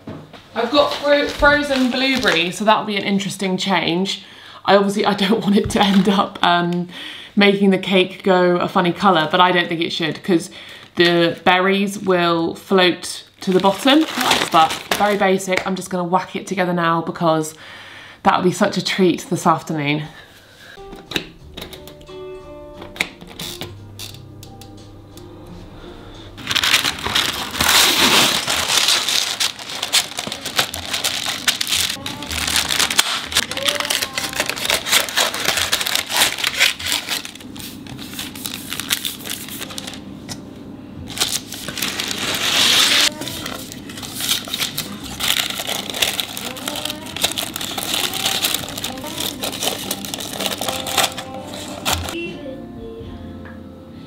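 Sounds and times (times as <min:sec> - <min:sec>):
baking paper crinkling: 0:00.6 - 0:02.9, 0:13.4 - 0:15.6, 0:26.4 - 0:40.1, 0:41.1 - 0:52.2.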